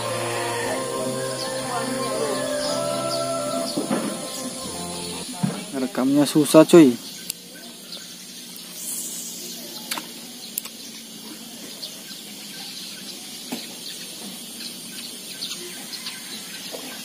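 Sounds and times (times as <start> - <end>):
river hiss: 0.0 - 5.4, 8.3 - 11.6
brief high hiss: 8.8 - 10.0.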